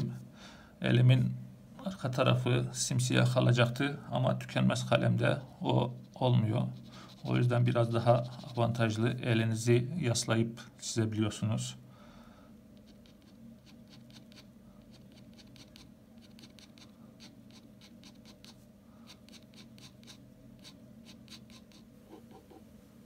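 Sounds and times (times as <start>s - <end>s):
pen scratching on paper: 5.3s - 8.9s, 12.8s - 22.6s.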